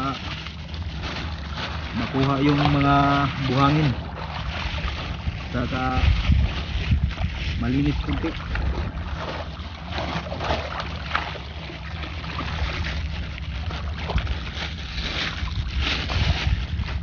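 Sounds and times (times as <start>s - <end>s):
seawater splashing and sloshing: 0.0s - 17.0s
wind rumble on microphone: 0.0s - 17.0s.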